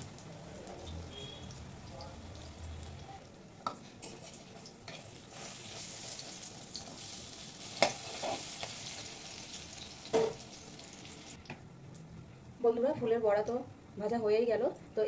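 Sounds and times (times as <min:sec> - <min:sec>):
fritters sizzling in hot oil: 0:00.0 - 0:11.4
metal spatula scraping pan: 0:07.8 - 0:08.6.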